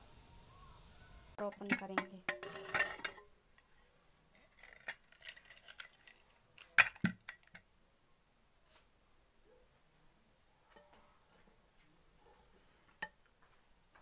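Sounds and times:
metal lid clinks and scrapes: 1.5 - 3.3.

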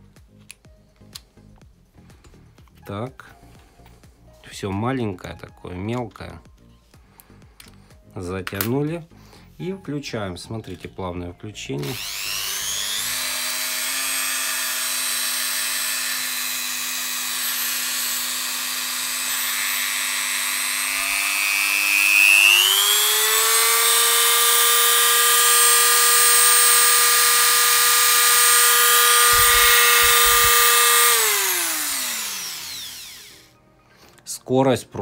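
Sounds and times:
rotary tool motor whine: 11.8 - 33.5.

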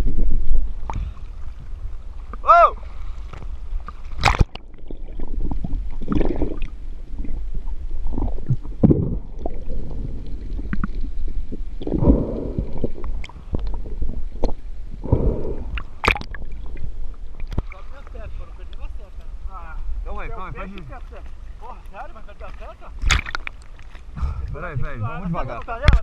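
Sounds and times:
gurgling water whooshes: 0.0 - 18.7
muffled underwater rumble: 0.0 - 26.0.

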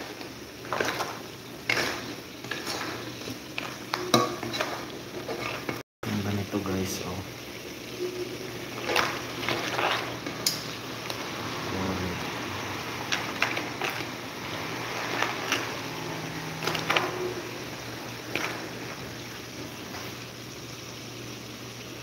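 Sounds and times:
food sizzling in a wok: 0.0 - 22.0
utensil scraping and knocking pan: 0.6 - 5.8, 8.8 - 10.6.

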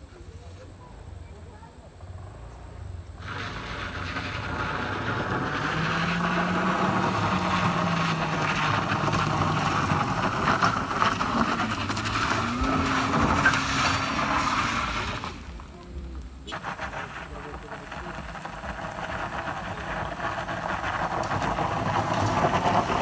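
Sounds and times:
tyre and road noise: 0.0 - 23.0
vehicle engine revving: 2.0 - 23.0.

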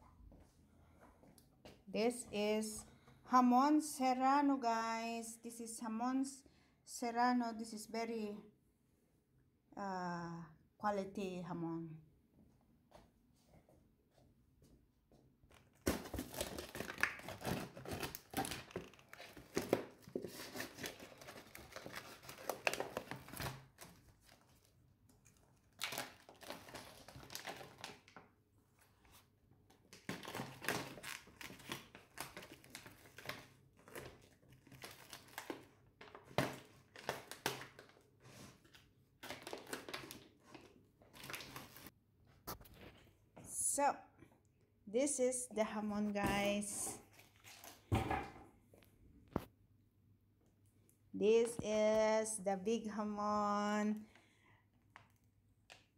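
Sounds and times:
plastic bag crinkling: 15.7 - 28.2, 29.9 - 41.9.

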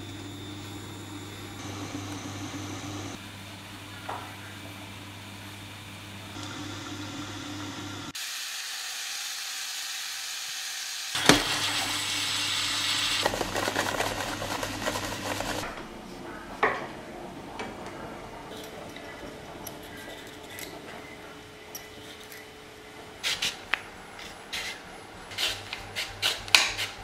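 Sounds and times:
onions sizzling in a pot: 8.2 - 13.3
peeler scraping beetroot: 24.2 - 27.0.

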